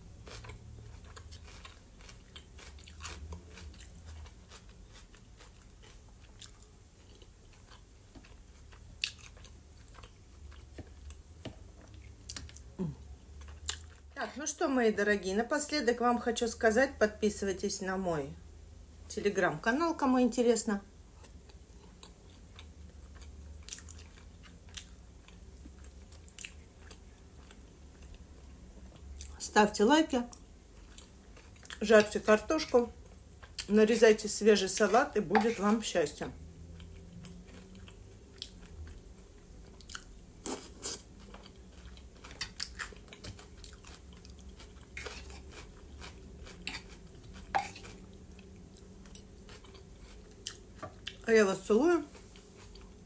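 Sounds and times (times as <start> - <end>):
chewing fried potatoes: 0.0 - 14.2, 21.1 - 53.0.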